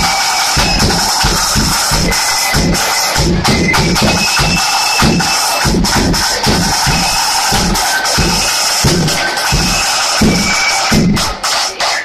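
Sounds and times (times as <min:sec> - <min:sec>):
flutes playing a tune: 0:00.0 - 0:11.1
bass drum beat: 0:00.0 - 0:11.5
snare drumming: 0:00.0 - 0:12.0.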